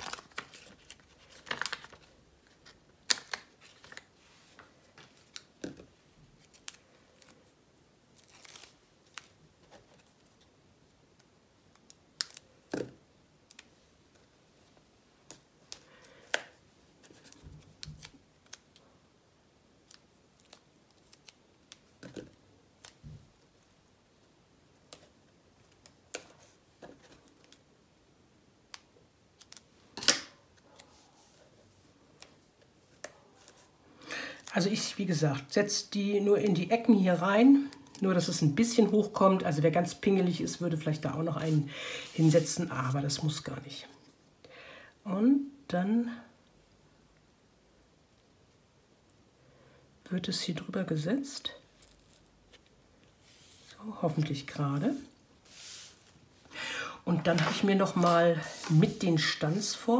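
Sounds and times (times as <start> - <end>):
soft paper handling: 0.0 - 10.6, 13.5 - 18.8, 30.6 - 33.8, 41.4 - 43.0, 51.6 - 56.4, 57.1 - 59.8.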